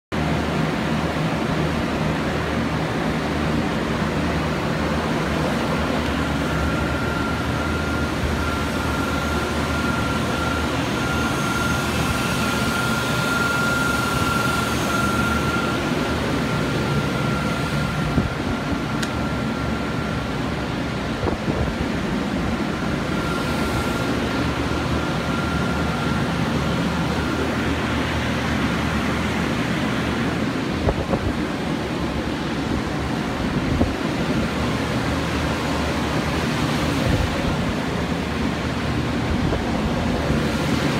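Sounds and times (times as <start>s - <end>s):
high whine: 0.1s - 40.9s
machine rushing noise: 2.0s - 31.4s.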